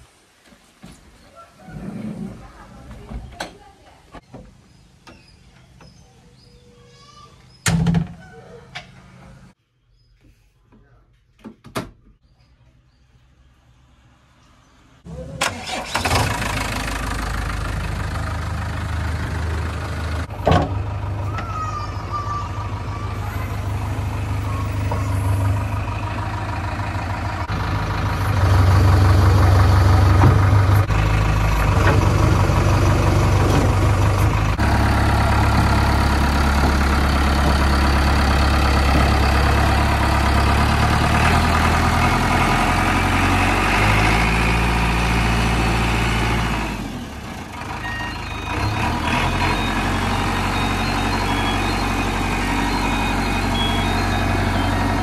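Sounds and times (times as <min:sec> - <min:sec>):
diesel engine working under load: 0:15.0 - 0:55.0.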